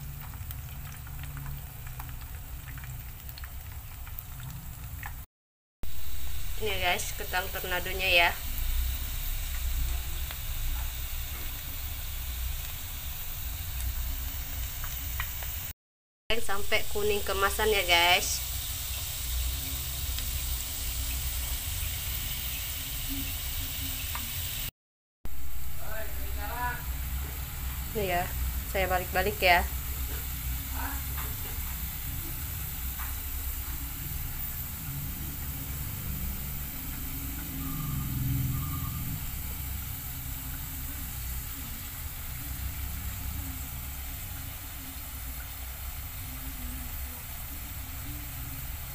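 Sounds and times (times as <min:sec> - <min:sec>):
potato deep-frying in oil: 0:00.0 - 0:15.7, 0:16.3 - 0:24.7, 0:25.3 - 0:48.9
low hum: 0:31.8 - 0:44.9.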